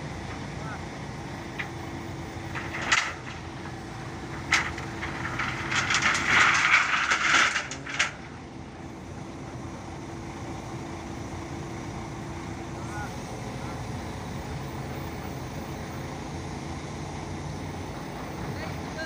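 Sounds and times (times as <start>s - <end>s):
crane engine running: 0.0s - 19.0s
metal bars clattering together: 2.5s - 3.4s, 4.4s - 8.3s
steel bars clanking: 2.5s - 3.5s, 4.3s - 8.4s.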